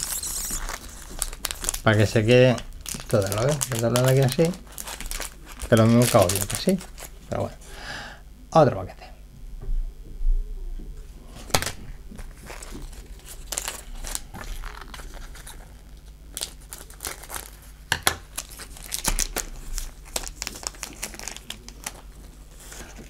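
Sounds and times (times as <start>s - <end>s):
foil pack crinkling and tearing: 0.0s - 7.5s, 11.5s - 23.0s.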